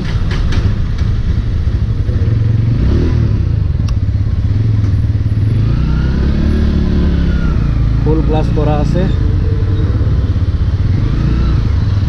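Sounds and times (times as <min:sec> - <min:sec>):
motorcycle engine idling: 0:00.0 - 0:02.8, 0:03.4 - 0:05.6, 0:07.0 - 0:12.0.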